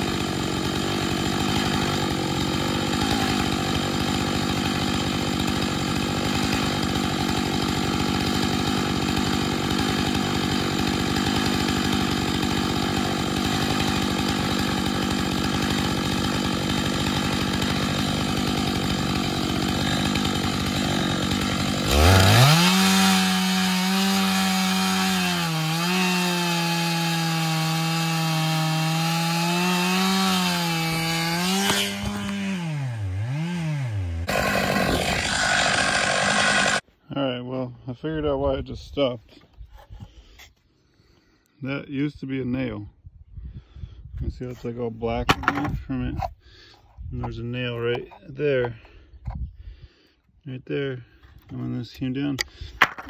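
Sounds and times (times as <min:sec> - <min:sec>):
chainsaw cutting log: 0:00.0 - 0:36.8, 0:45.1 - 0:49.5, 0:50.8 - 0:53.0
chainsaw engine revving high: 0:00.0 - 0:36.8.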